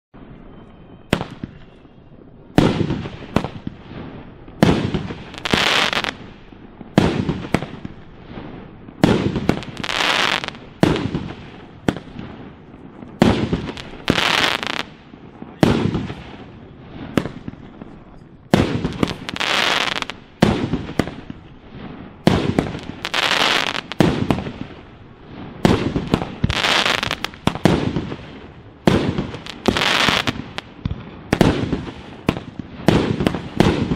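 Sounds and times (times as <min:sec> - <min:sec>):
firework bangs: 0:00.2 - 0:33.9
firework crackling: 0:00.3 - 0:33.9.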